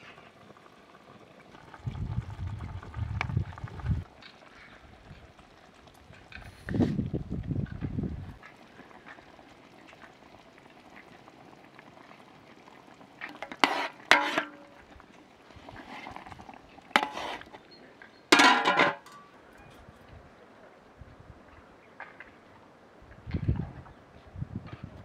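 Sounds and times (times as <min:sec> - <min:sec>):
broth simmering: 0:00.0 - 0:20.6
metal lid set on pot: 0:13.4 - 0:14.8, 0:17.0 - 0:17.4, 0:18.3 - 0:19.3
metal ladle knocking on pot: 0:18.3 - 0:19.2.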